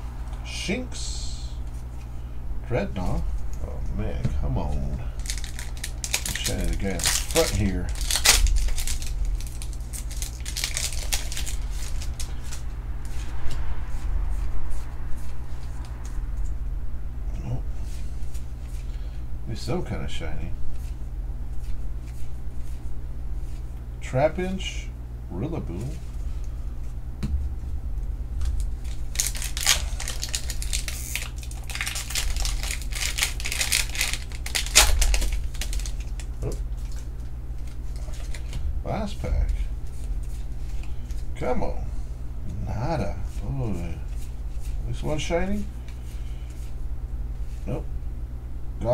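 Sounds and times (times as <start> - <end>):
steady low hum: 0.0 - 48.9
foil wrapper crinkling and tearing: 5.1 - 12.6, 28.4 - 38.6.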